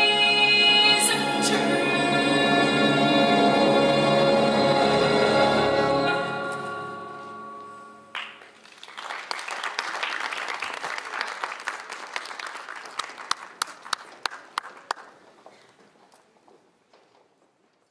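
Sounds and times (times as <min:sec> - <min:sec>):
musical closing chord: 0:01.0 - 0:08.1
audience applause: 0:08.1 - 0:15.7.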